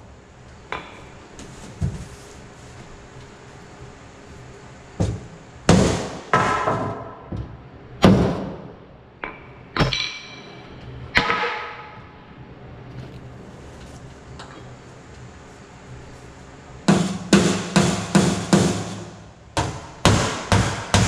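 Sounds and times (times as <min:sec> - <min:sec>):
hammer striking sheet steel: 0:16.9 - 0:21.0.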